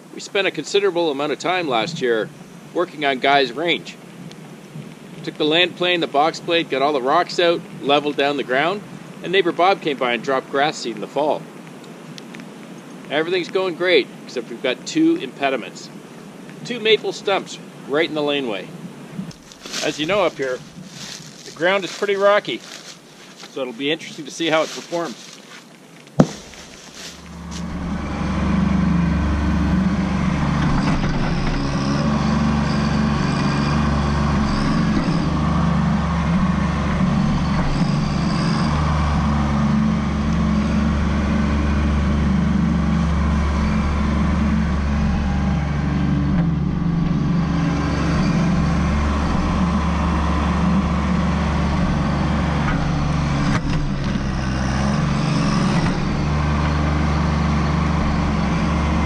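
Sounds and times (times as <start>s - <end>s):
tractor diesel engine running: 19.3s - 25.4s, 26.2s - 59.0s
bucket digging soil and roots: 19.3s - 27.9s.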